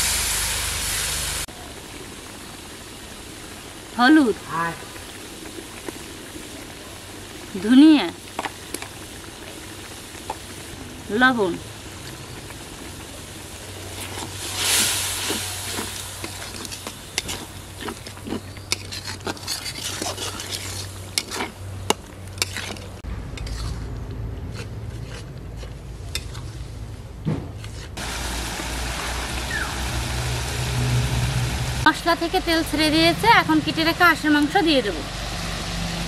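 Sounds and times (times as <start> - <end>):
spice paste sizzling in oil: 0.0 - 23.8, 27.6 - 36.0
metal spatula scraping a pan: 18.4 - 21.6, 22.4 - 23.8
steady low rumble: 23.0 - 27.3.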